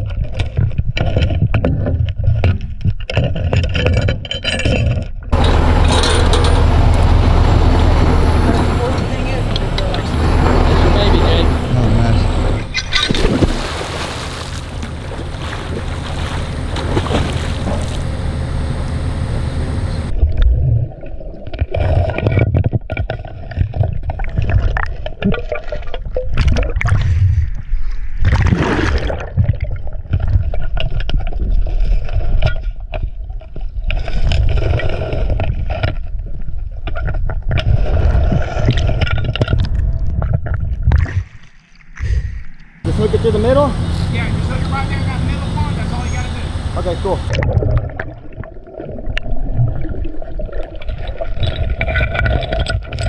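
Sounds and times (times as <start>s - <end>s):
knocks and bumps underwater: 0.0s - 7.2s, 12.8s - 18.2s, 20.1s - 42.3s, 47.3s - 53.0s
swimmer splashing: 5.4s - 18.8s
underwater gurgling and bubbling: 20.0s - 41.4s, 47.1s - 53.0s.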